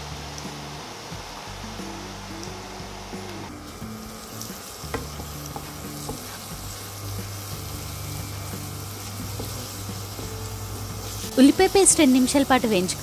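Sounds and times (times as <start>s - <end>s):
paste sizzling in hot oil: 3.5s - 13.0s
wooden spatula knocking pan: 4.9s - 6.4s.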